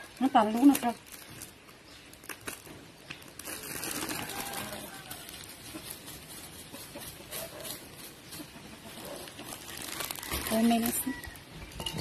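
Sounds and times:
plastic bag crinkling: 0.0 - 6.5, 8.9 - 11.9.

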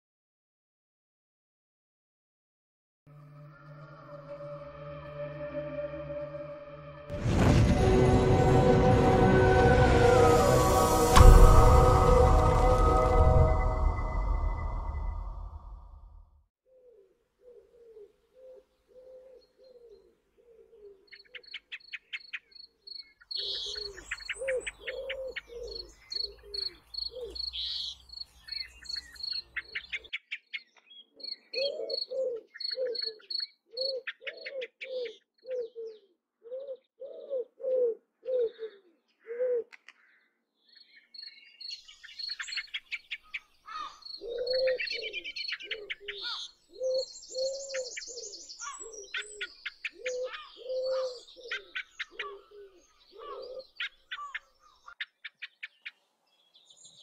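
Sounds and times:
bird cooing: 16.7 - 21.5, 23.4 - 27.5, 31.2 - 39.9, 43.7 - 54.4
small birds chirping: 17.5 - 37.5, 38.3 - 57.0
small birds trilling: 21.1 - 37.5, 40.0 - 57.0.

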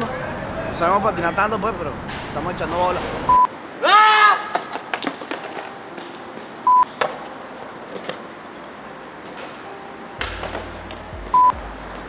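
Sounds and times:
low background noise: 0.0 - 12.0
loud electronic beep: 3.3 - 3.5, 11.3 - 11.6.

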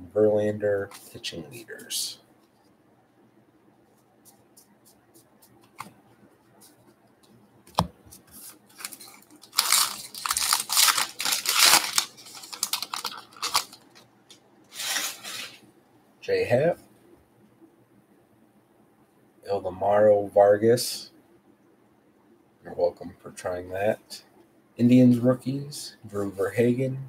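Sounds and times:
wrapper tearing and crinkling: 8.7 - 14.0.

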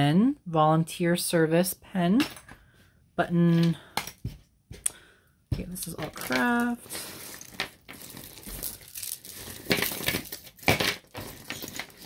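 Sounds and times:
jewelry clinking and rattling: 5.8 - 12.0.

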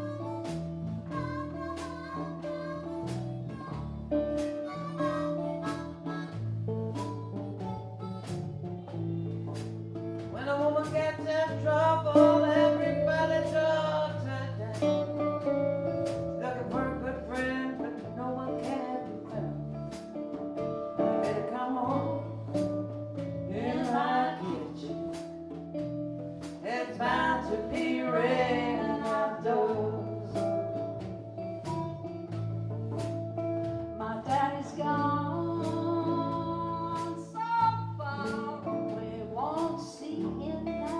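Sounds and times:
drums steady beat: 0.0 - 12.6, 13.4 - 39.0
electric bass: 0.0 - 40.9
guitars: 0.0 - 40.9
person singing: 23.5 - 25.0, 26.6 - 30.6, 34.0 - 40.9.

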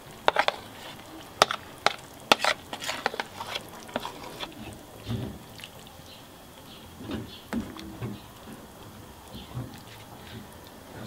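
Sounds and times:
spatula stirring squelching: 0.0 - 5.9.

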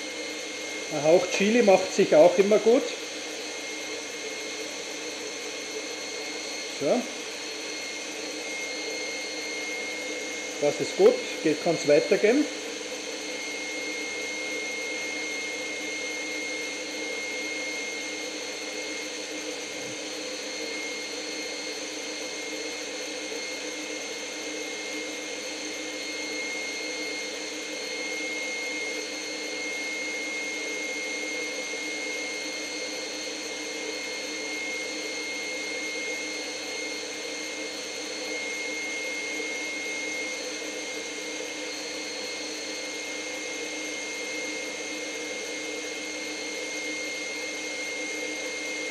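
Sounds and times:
stand mixer running: 0.0 - 48.9.

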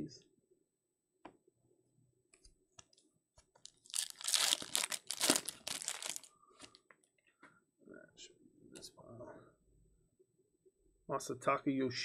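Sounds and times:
foil wrapper tearing: 3.6 - 6.3
foil crinkling: 3.6 - 6.8.

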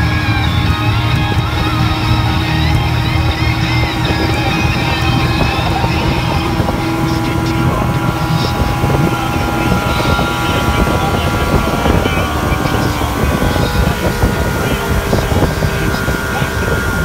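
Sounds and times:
outboard motor droning: 0.0 - 17.0
rushing wind and water: 0.0 - 17.0.

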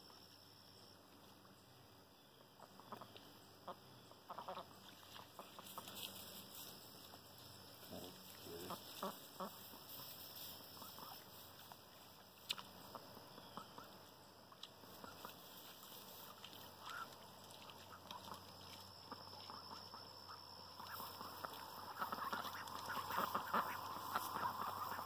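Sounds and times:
faint duck quacking: 2.6 - 6.1, 7.8 - 11.4, 12.5 - 14.1, 19.0 - 25.0.

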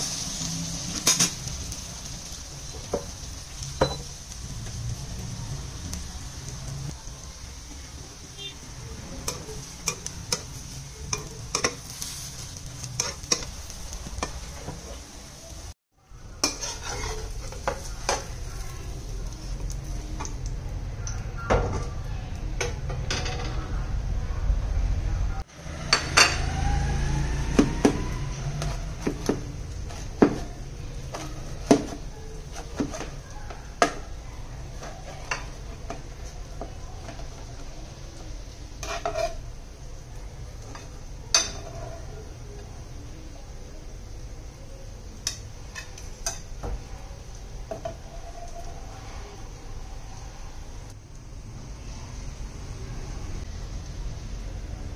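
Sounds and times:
omelette sizzling in a frying pan: 0.0 - 24.0, 25.4 - 54.9
metal spatula scraping: 9.0 - 15.0, 16.3 - 18.7, 28.4 - 33.3, 38.7 - 39.6.

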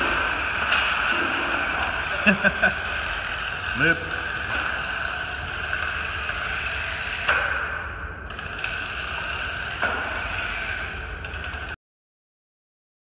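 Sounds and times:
toy car electric motors whirring: 0.0 - 11.8.

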